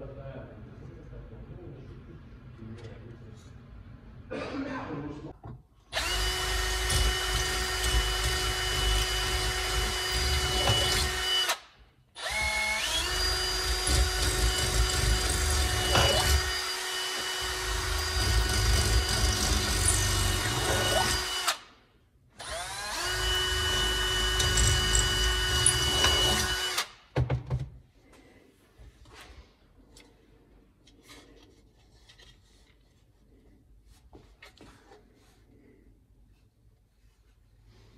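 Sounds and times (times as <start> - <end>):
power tool motor whine: 6.0 - 11.6, 22.4 - 26.9.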